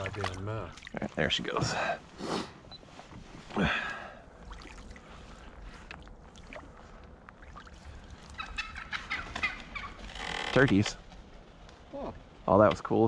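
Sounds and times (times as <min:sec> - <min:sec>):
faint water: 0:00.0 - 0:10.7.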